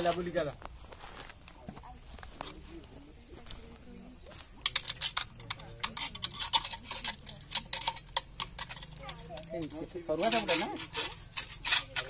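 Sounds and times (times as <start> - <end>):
metal hook scraping ceramic: 4.6 - 12.0.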